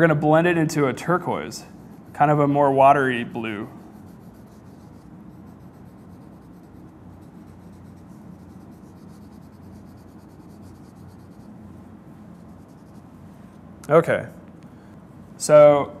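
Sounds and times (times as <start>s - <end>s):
crayon scribbling on paper: 1.7s - 2.8s, 3.4s - 11.5s, 12.3s - 13.1s.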